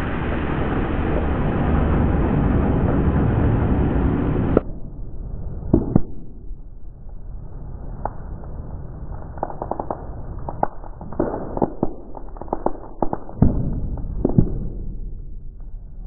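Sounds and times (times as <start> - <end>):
paper crushing cracks and pops: 9.3 - 13.4.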